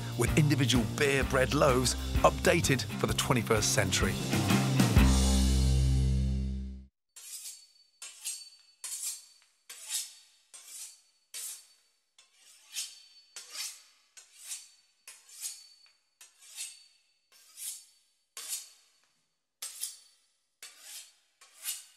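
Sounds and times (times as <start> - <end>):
knife sawing through pastry crust: 7.2 - 19.0, 19.6 - 21.9.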